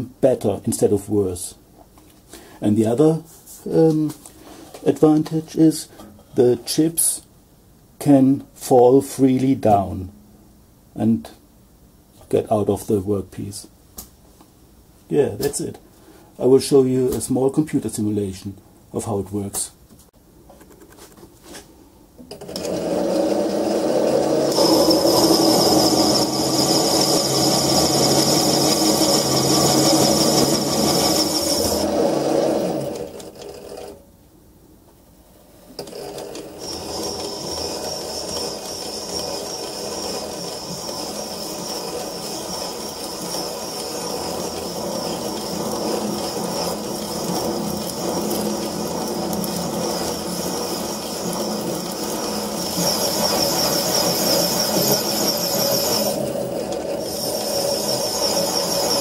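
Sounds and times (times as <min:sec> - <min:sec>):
lathe motor whine: 0:22.3 - 0:34.0, 0:35.8 - 0:59.0
tool cutting metal: 0:22.3 - 0:34.0, 0:35.8 - 0:59.0.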